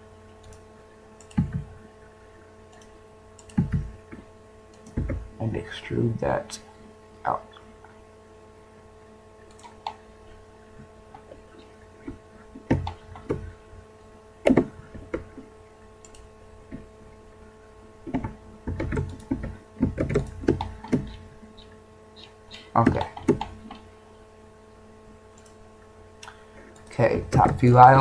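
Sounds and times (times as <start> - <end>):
electrical hum: 0.0 - 28.0
keyboard and mouse clicks: 0.4 - 0.6, 1.2 - 1.7, 2.7 - 3.9, 4.7 - 5.2, 9.5 - 10.0, 12.0 - 13.5, 16.0 - 16.8, 18.1 - 21.2, 22.5 - 23.8, 25.4 - 25.6.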